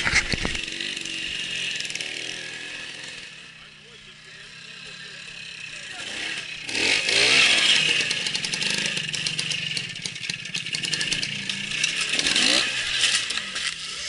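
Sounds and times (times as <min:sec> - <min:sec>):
two-stroke motorcycle engine popping: 0:00.0 - 0:03.8, 0:04.4 - 0:14.0.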